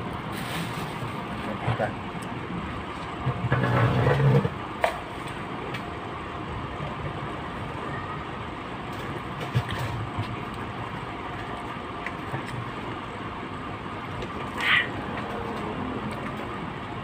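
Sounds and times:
steady background noise: 0.0 - 17.0
rustles: 0.3 - 1.6.

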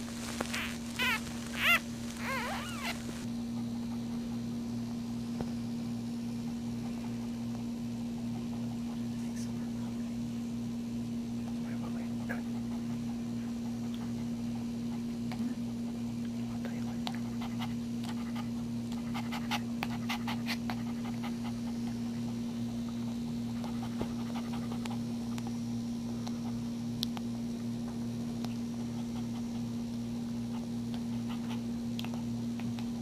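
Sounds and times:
low electrical hum: 0.0 - 33.0
dog panting: 0.6 - 4.5, 11.5 - 25.6, 28.6 - 32.8.

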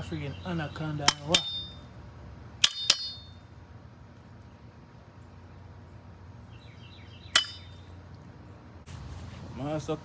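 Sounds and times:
low background hum: 0.0 - 10.0
metal pole clinking: 1.0 - 1.9, 2.6 - 3.5, 7.4 - 7.8.

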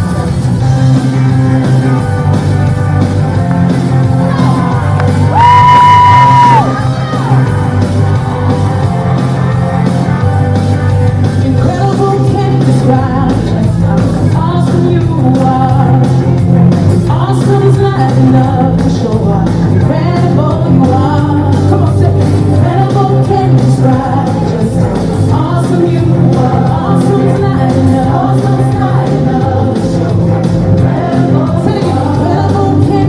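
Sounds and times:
gospel song over loudspeakers: 11.4 - 33.0.

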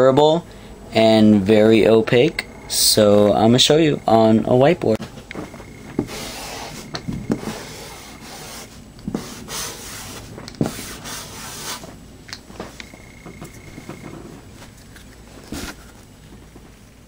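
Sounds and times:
marker rubbing on whiteboard: 5.9 - 12.0.

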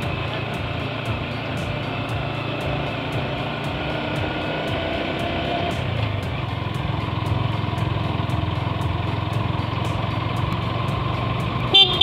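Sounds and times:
motorcycle engine running: 0.0 - 12.0
short horn toot: 11.7 - 12.0.

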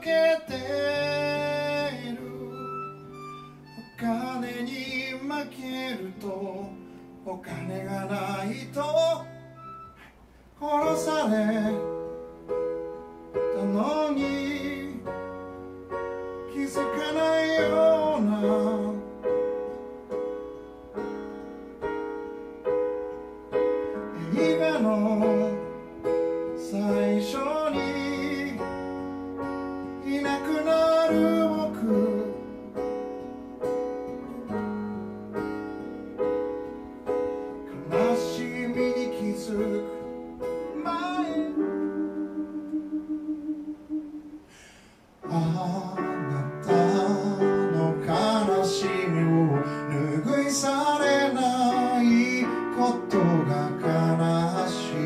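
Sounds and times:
man singing: 0.0 - 9.6, 10.6 - 12.2, 13.4 - 15.4, 16.4 - 19.5, 24.0 - 29.1, 29.8 - 32.8, 37.7 - 44.5, 45.2 - 55.0
keyboard chords: 0.0 - 44.6, 45.2 - 55.0
acoustic guitar: 0.0 - 55.0.

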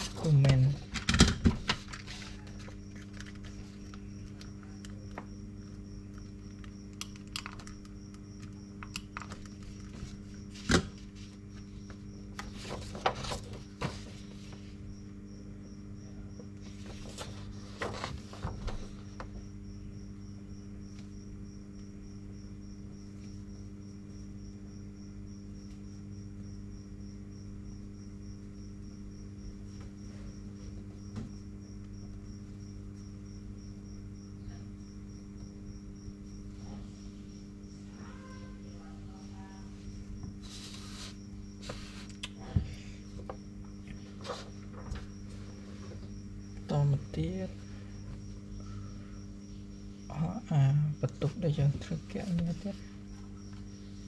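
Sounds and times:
cricket trill: 0.0 - 54.0
electrical mains hum: 0.0 - 54.0
paper rustling: 9.2 - 14.7, 16.7 - 18.9, 40.4 - 42.1.

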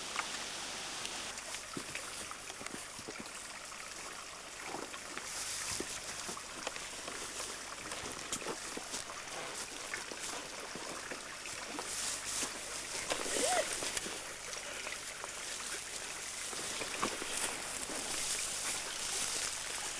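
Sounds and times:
stream trickling over stones: 0.0 - 19.9
twigs and branches rustling: 4.6 - 19.9.

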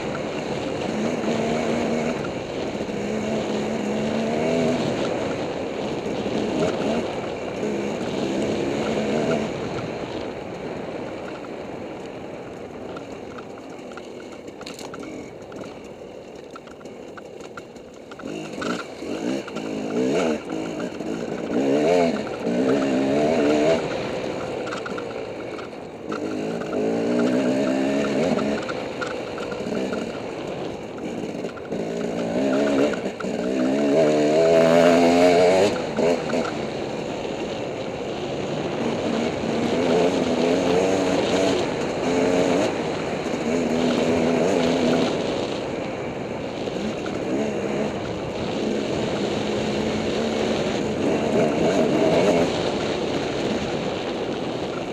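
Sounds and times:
dirt bike engine accelerating: 0.0 - 54.9.

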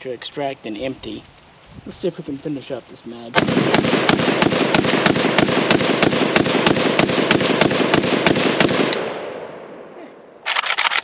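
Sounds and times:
rifle firing rapidly: 3.4 - 9.2
sharp clicks and rattles: 10.4 - 11.0.

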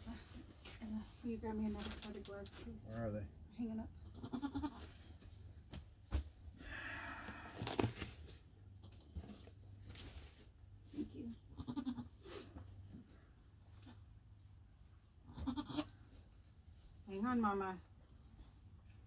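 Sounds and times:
goat bleating: 4.0 - 4.8, 11.6 - 12.1, 15.3 - 15.9
rustling: 4.3 - 11.5, 12.4 - 17.5.

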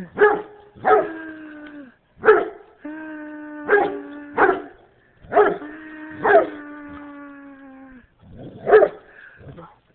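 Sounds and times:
dog barking deeply: 2.2 - 2.6, 3.7 - 4.7, 5.3 - 6.5, 8.6 - 9.0.

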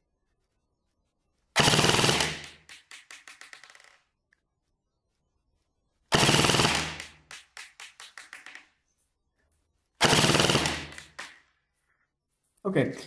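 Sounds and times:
airsoft gun full-auto bursts: 1.6 - 3.7, 6.1 - 7.6, 10.0 - 11.4.

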